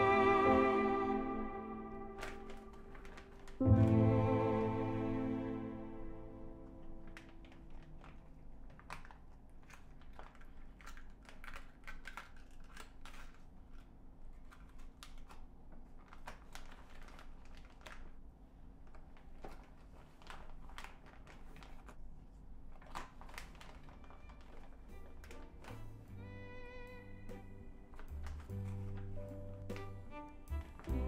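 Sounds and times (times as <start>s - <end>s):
plastic bag crinkling: 2.1s - 4.9s, 6.4s - 26.2s.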